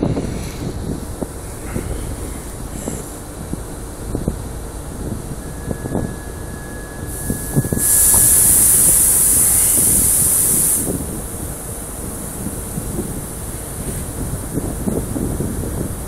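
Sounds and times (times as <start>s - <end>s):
wind buffeting microphone: 0.0s - 16.0s
loud pressure release hiss: 5.4s - 14.0s.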